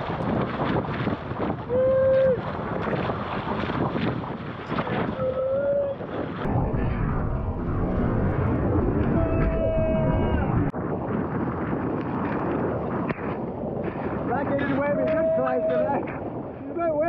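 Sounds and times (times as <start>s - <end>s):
wind buffeting microphone: 0.0s - 17.0s
person shouting: 14.9s - 16.0s.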